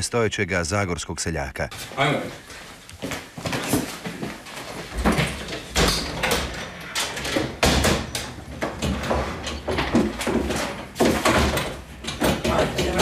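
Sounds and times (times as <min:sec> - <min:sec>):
knocks and clatter: 0:03.5 - 0:13.0
cupboard doors banging shut: 0:05.0 - 0:13.0.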